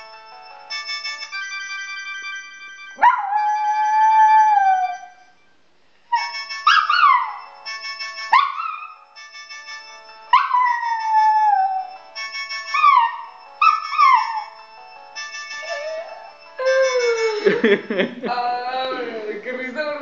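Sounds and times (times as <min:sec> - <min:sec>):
melody of held notes: 0:00.0 - 0:05.4, 0:06.1 - 0:20.0
dog howling: 0:03.0 - 0:05.2, 0:15.6 - 0:17.5.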